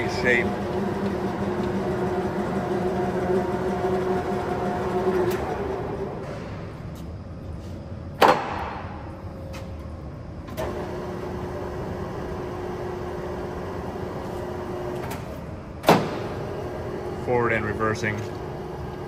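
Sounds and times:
lathe running with whine: 0.0 - 6.3, 16.4 - 19.0.

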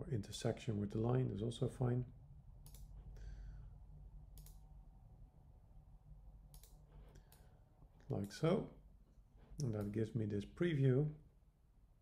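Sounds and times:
low steady hum: 0.0 - 12.0
computer mouse clicks: 2.6 - 3.1, 4.3 - 4.6, 6.5 - 7.5.

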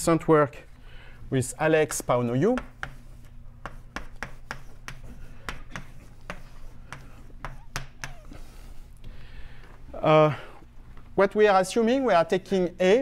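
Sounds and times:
chalk tapping and scratching: 2.3 - 8.4.

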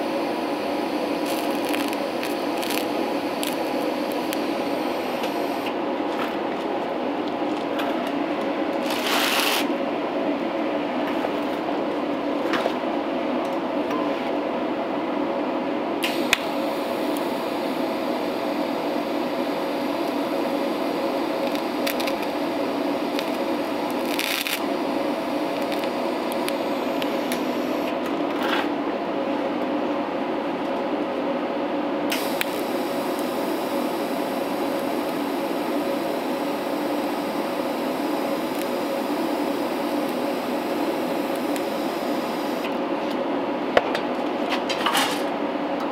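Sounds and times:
welding arc hissing: 0.0 - 5.7, 8.8 - 9.7, 16.0 - 27.9, 32.1 - 42.7
steady low hum: 0.0 - 9.0, 9.6 - 44.6.

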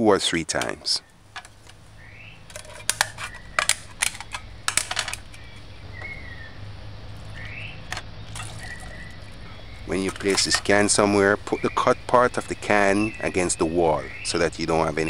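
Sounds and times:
tin can clinks and knocks: 0.6 - 1.8, 2.5 - 5.5, 7.8 - 9.0, 9.9 - 11.0.

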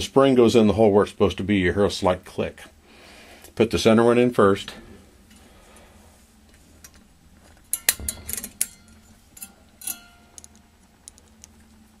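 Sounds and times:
brief metallic ring: 7.7 - 10.4
metal spring and pliers clicking: 7.7 - 11.5.

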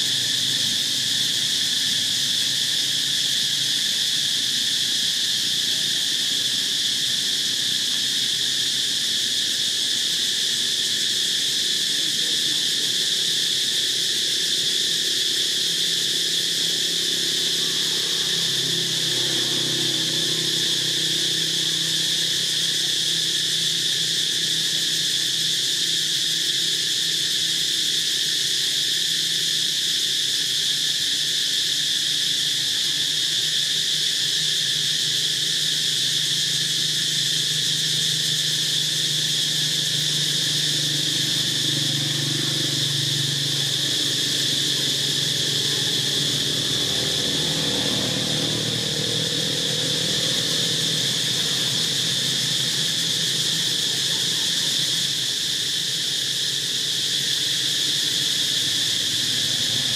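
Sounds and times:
high-pitched insect chorus: 0.0 - 59.9.

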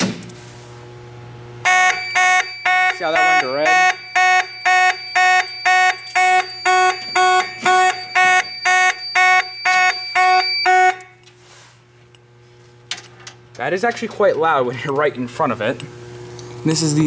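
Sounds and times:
fire alarm horn pulsing: 1.6 - 11.2.

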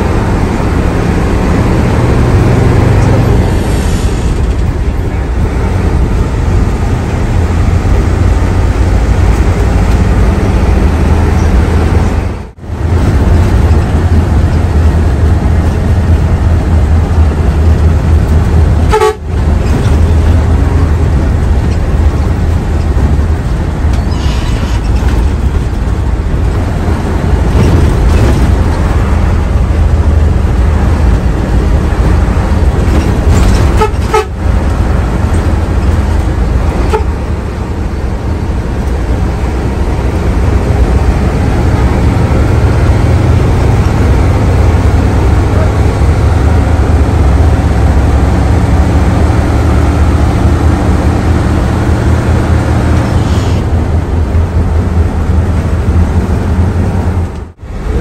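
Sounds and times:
bus diesel engine: 0.0 - 58.0
road rumble: 0.0 - 58.0
horn tooting: 18.8 - 19.4, 33.7 - 34.5, 36.8 - 37.2.

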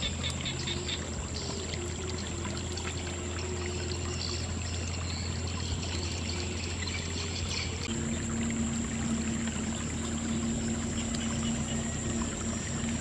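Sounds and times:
muddy water trickling and splashing: 0.0 - 13.0
steady low hum: 0.0 - 13.0.

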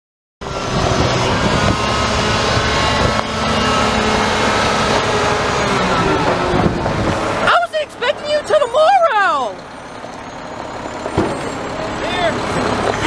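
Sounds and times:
garbage truck diesel engine: 0.4 - 13.0
steady whine: 0.4 - 13.0.

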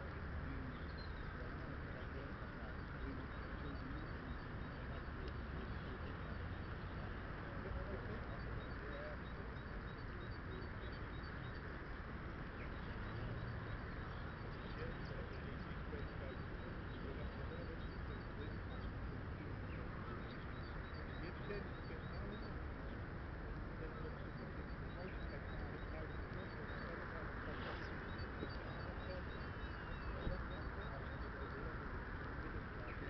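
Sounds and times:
distant voices: 0.0 - 33.0
faint high bird chirps: 23.8 - 33.0.

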